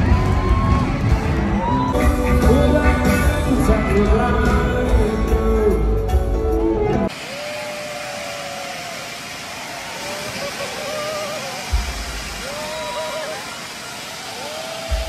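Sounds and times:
music with heavy bass and singing: 0.0s - 7.1s
hiss with long held note: 7.1s - 15.0s.

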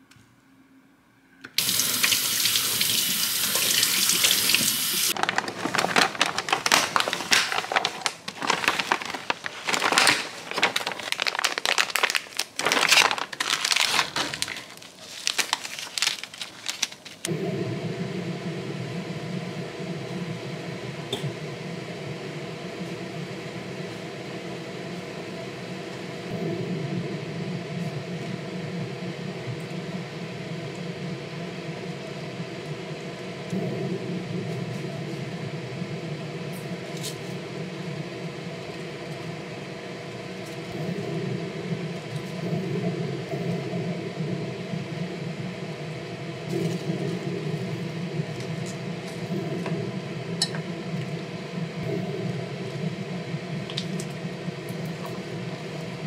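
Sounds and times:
gas burner humming: 1.4s - 11.2s, 14.2s - 56.0s
running water: 1.6s - 6.7s
plastic packet crinkling: 5.2s - 17.3s.

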